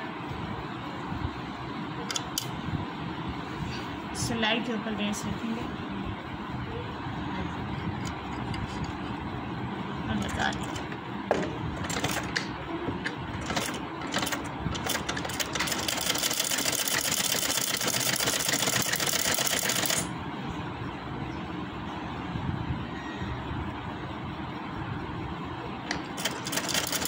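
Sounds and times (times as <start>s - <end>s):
sewing machine stitching: 13.4s - 20.1s, 26.1s - 27.0s.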